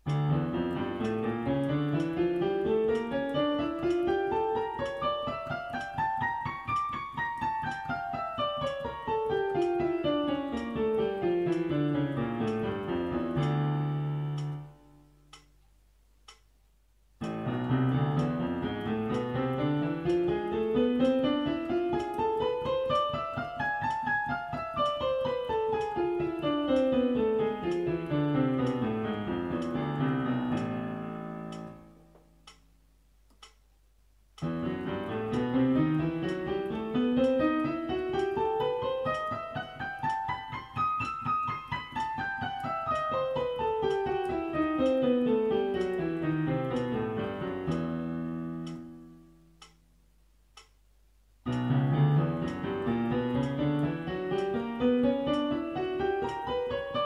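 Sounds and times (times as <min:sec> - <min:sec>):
piano scales: 0:00.0 - 0:15.4, 0:17.2 - 0:32.6, 0:34.4 - 0:49.7, 0:51.4 - 0:57.0
faint tick: 0:16.2 - 0:16.5, 0:31.5 - 0:32.7, 0:33.3 - 0:33.6, 0:49.6 - 0:49.8, 0:50.5 - 0:50.8.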